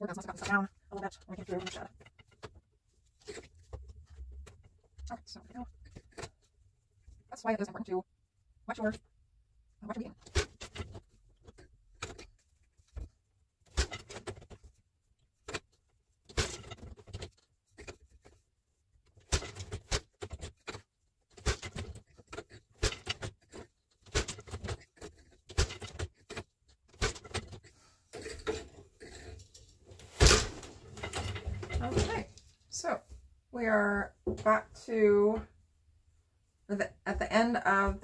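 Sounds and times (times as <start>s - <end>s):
wooden loom clacks and knocks: 10.0s - 14.7s, 15.4s - 18.4s, 19.1s - 32.4s.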